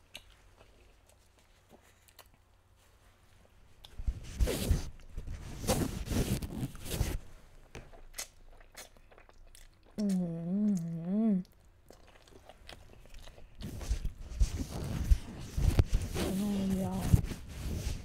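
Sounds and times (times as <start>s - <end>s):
soft chewing clicks: 0.0s - 2.6s, 7.7s - 13.6s
person humming mmm: 10.0s - 11.6s.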